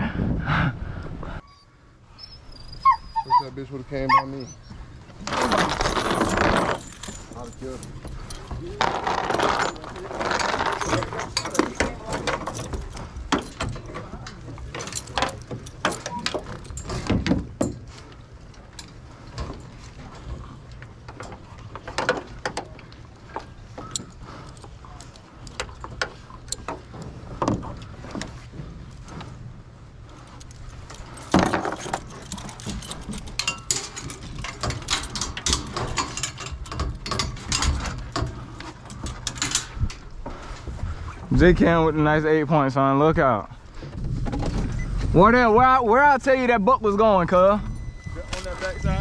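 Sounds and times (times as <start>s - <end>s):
metal chain clinking and rattling: 5.2s - 28.2s, 30.1s - 40.1s, 47.4s - 49.0s.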